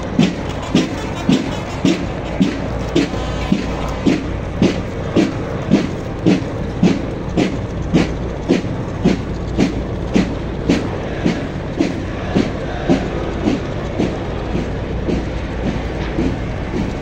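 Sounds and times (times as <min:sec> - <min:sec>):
boots marching on pavement: 0:00.2 - 0:17.0.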